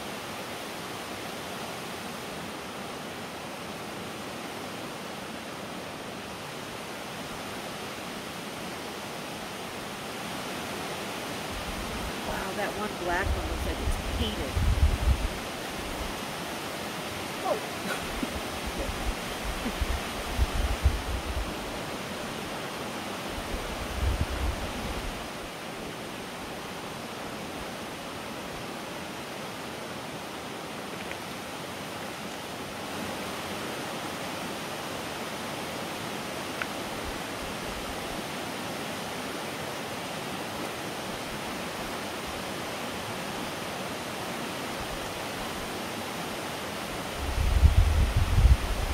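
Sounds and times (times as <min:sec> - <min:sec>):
rushing outdoor background noise: 0:00.0 - 0:48.9.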